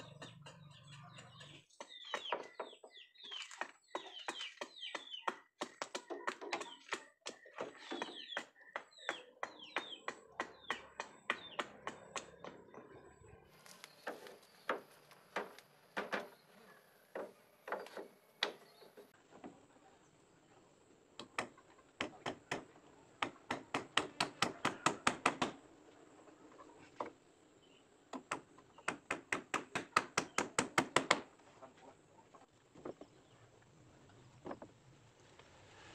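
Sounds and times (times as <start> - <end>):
hand tools knocking on wood: 0.0 - 12.7.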